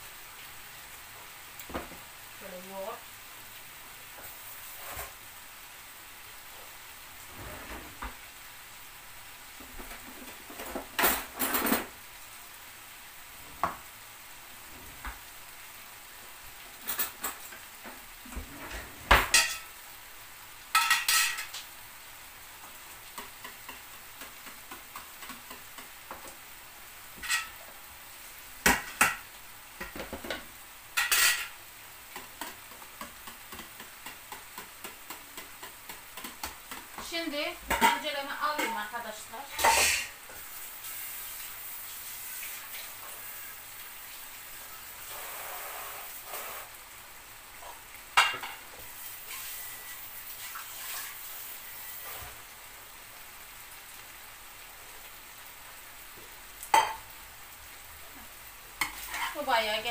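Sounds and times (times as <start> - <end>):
food sizzling in frying pan: 0.0 - 59.9
utensils clinking against dishes: 39.6 - 40.1.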